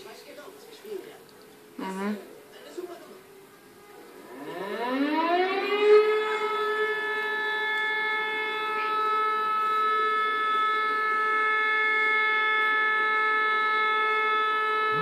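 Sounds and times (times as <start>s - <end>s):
siren steady pitch: 4.2s - 15.0s.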